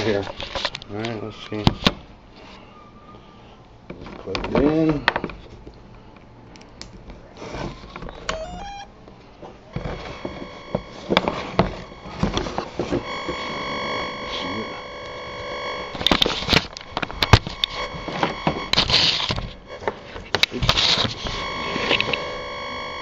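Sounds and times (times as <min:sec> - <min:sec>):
electric motor whine: 0:08.3 - 0:08.9, 0:09.7 - 0:23.0.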